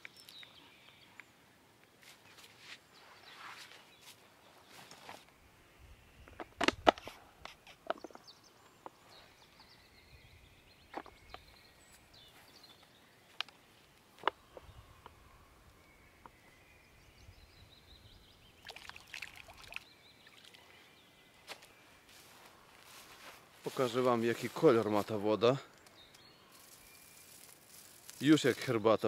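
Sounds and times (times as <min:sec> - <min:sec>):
faint birdsong: 0:00.0 - 0:29.0
short rustle: 0:02.0 - 0:05.3.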